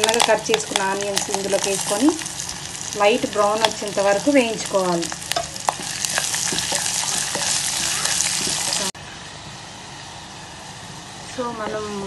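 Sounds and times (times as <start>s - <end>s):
onions sizzling in hot oil: 0.0s - 12.0s
wooden spatula tapping pot: 5.3s - 8.9s.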